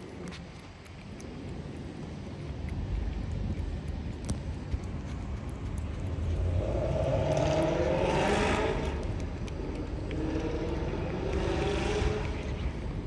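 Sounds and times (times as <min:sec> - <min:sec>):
vehicle passing by: 0:06.2 - 0:13.0.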